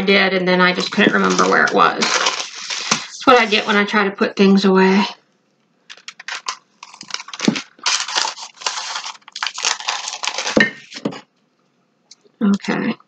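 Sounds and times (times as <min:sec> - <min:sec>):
parchment paper crinkling: 0:00.6 - 0:03.8, 0:05.9 - 0:11.1.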